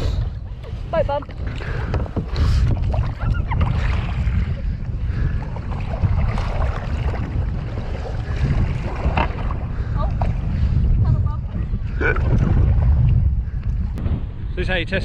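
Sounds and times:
wind buffeting microphone: 0:00.0 - 0:15.0
paddle splashing through water: 0:00.5 - 0:10.8.

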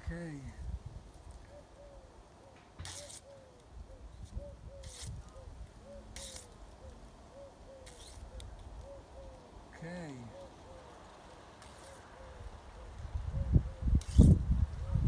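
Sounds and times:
dove cooing: 0:01.4 - 0:09.6, 0:10.2 - 0:13.9
palm leaf ripping: 0:02.8 - 0:03.3, 0:04.8 - 0:05.3, 0:06.1 - 0:06.9, 0:07.8 - 0:08.7, 0:11.3 - 0:12.1, 0:14.0 - 0:14.4.

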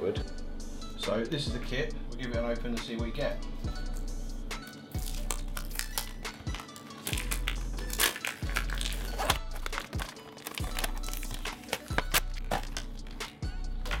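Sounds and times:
background music: 0:00.0 - 0:14.0
plastic blister pack crinkling: 0:04.9 - 0:14.0
card backing tearing: 0:05.0 - 0:13.4.

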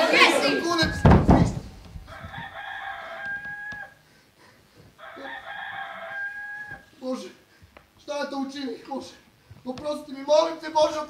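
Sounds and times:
rooster crowing: 0:00.2 - 0:04.0, 0:05.0 - 0:07.0.

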